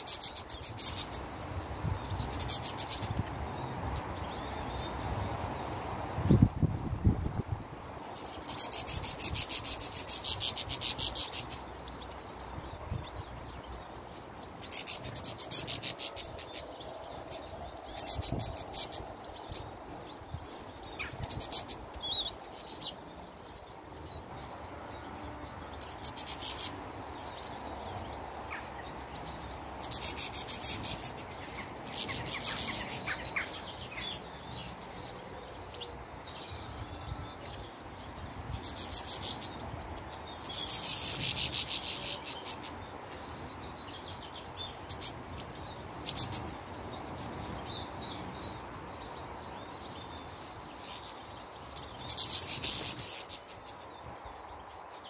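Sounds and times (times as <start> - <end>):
small birds twittering: 0.0 - 55.0.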